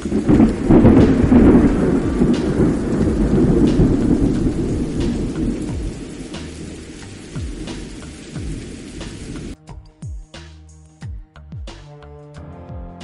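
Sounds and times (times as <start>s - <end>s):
rain pattering: 0.0s - 9.6s
thunder rolling: 0.0s - 9.6s.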